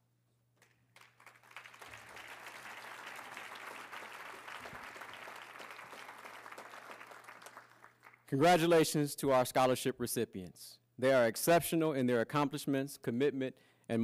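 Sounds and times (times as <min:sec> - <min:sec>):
audience applauding: 0:00.6 - 0:08.3.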